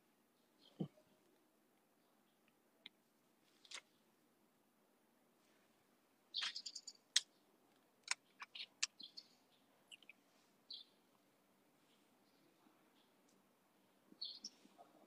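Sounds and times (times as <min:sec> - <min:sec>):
faint bird chirps: 0:00.3 - 0:01.3, 0:06.3 - 0:11.1, 0:11.8 - 0:15.0.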